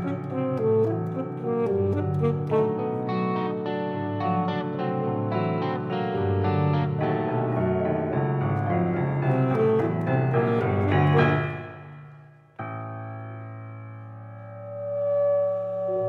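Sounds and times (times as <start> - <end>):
chamber music ensemble: 0.0 - 12.1.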